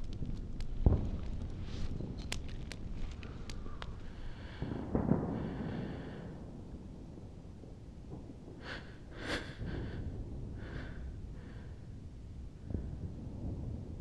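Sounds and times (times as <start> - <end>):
steady low rumble: 0.0 - 14.0
person breathing: 3.2 - 6.5, 8.6 - 12.1.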